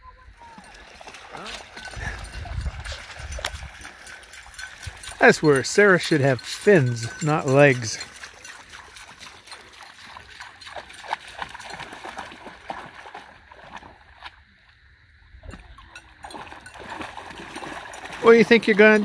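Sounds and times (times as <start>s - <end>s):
dog splashing through water: 0.4s - 14.4s, 16.2s - 19.0s.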